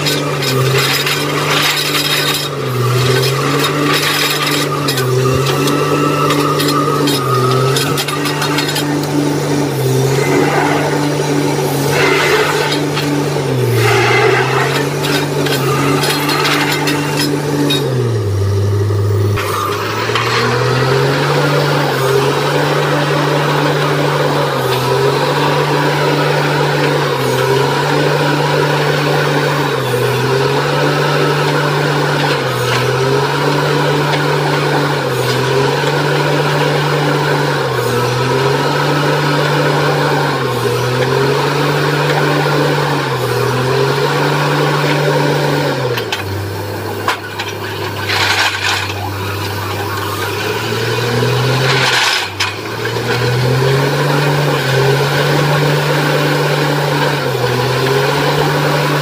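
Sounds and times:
drilling rig engine under load: 0.0s - 59.0s.

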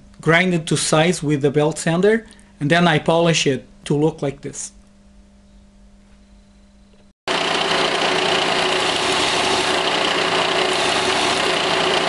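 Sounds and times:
belt sander grinding metal pin: 7.3s - 12.0s.

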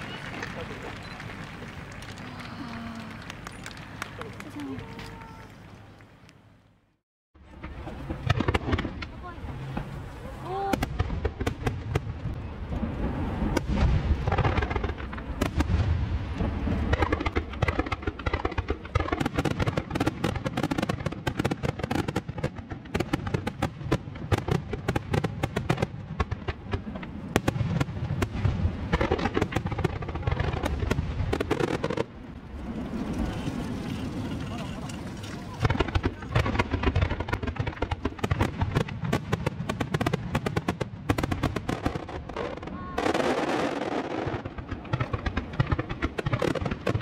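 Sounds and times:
fireworks crackling: 0.0s - 6.4s, 7.4s - 47.0s
deep firework bangs: 10.6s - 34.3s, 35.3s - 47.0s.

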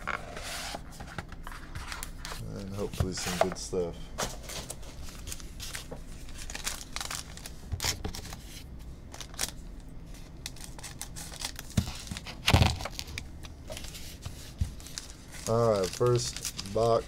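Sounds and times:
cardboard packaging tearing: 5.1s - 8.3s, 10.4s - 13.2s, 14.8s - 17.0s.

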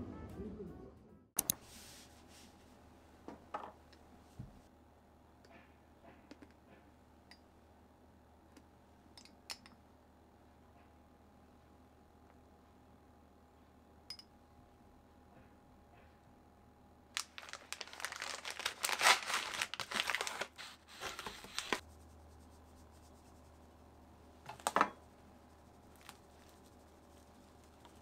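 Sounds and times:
packaging crinkling: 17.1s - 21.8s.

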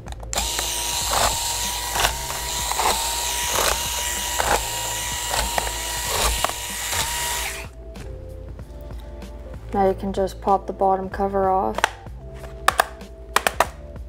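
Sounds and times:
electric screwdriver whining: 0.0s - 7.8s.

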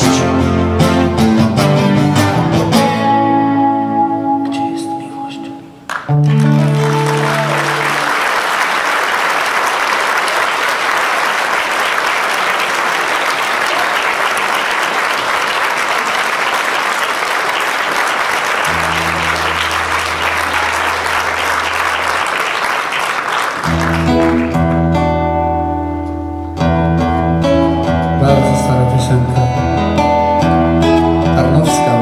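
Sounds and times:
acoustic guitar playing: 0.0s - 8.3s, 18.6s - 22.6s, 23.5s - 32.0s
audience applauding: 5.9s - 25.3s.

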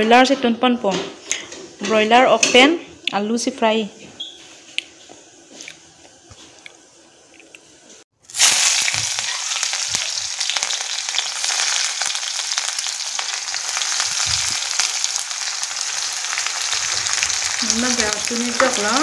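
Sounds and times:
onions sizzling in hot oil: 8.2s - 19.0s.

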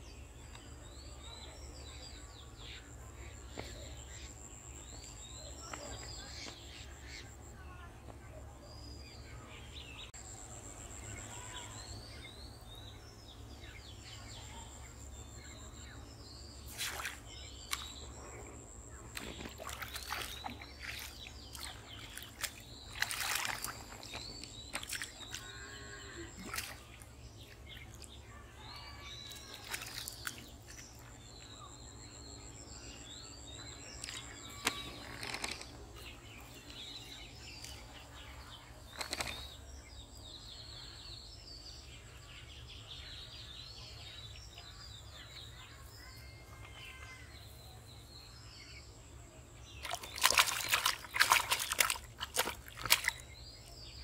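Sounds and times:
birds chirping: 0.0s - 54.0s
fish splashing at water surface: 16.7s - 17.9s, 19.1s - 25.4s, 26.3s - 27.0s, 49.8s - 53.3s.

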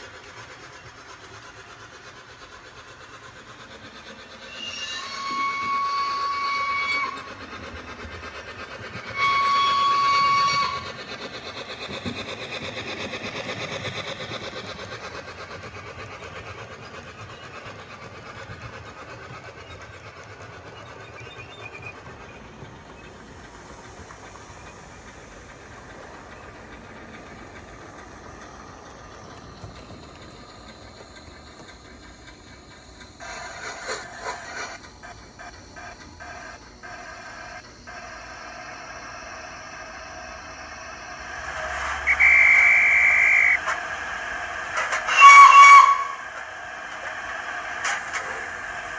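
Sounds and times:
model locomotive running sound: 0.0s - 48.9s
steam whistle blasts: 4.5s - 7.3s, 9.1s - 11.0s, 42.0s - 43.6s, 45.0s - 46.2s.

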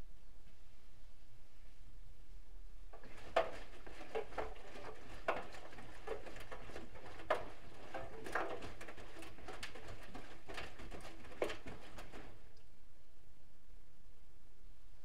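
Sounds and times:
laundry splashing in washing machine: 3.0s - 12.5s.

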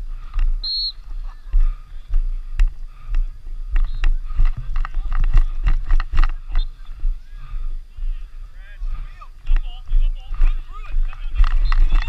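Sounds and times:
wind rumble on camera: 0.0s - 8.4s.

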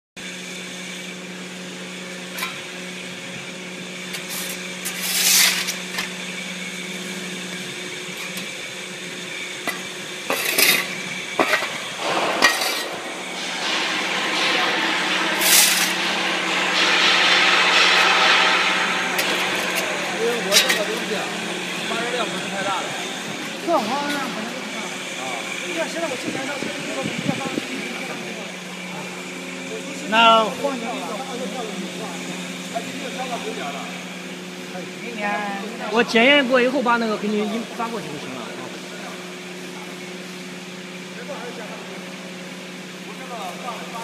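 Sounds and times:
steady hum: 0.3s - 44.0s
metallic clanks and clatter: 9.6s - 22.3s.

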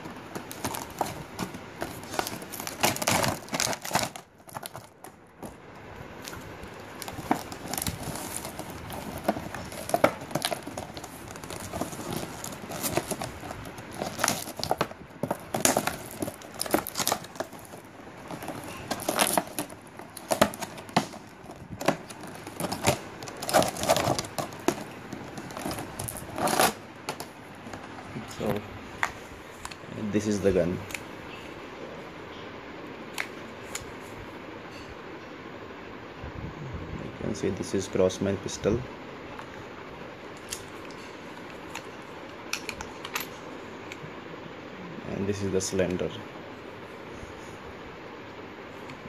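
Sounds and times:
plastic packaging crinkling: 0.0s - 29.9s.

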